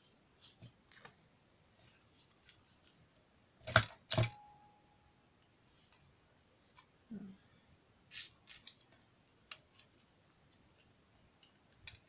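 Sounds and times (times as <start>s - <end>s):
paper rustling: 8.1s - 10.1s.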